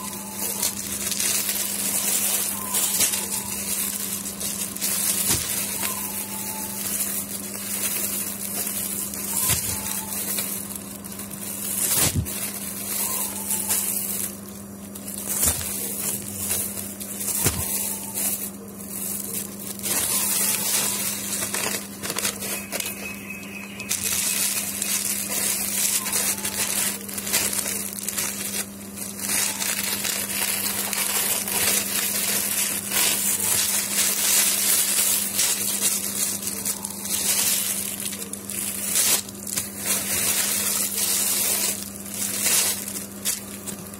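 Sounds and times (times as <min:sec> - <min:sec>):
plastic packaging crinkling: 0:00.0 - 0:43.9
steady low hum: 0:00.0 - 0:43.9.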